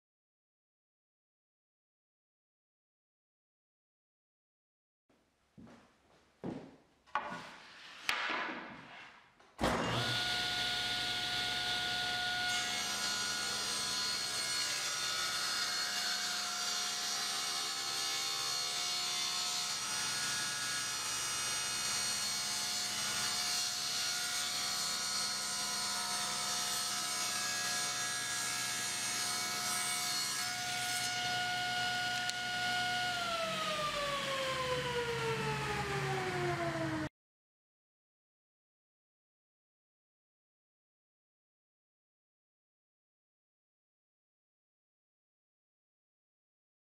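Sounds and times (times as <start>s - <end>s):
saw ripping board: 7.4s - 34.8s
table saw whine: 9.6s - 37.1s.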